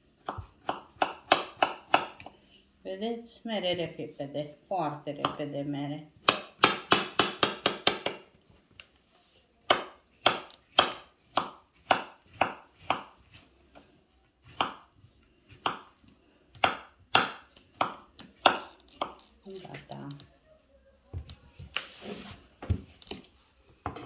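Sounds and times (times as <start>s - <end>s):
knife chopping on wooden board: 0.2s - 2.4s, 6.2s - 8.2s, 9.7s - 13.4s, 14.4s - 14.9s, 15.5s - 15.9s, 16.5s - 19.8s.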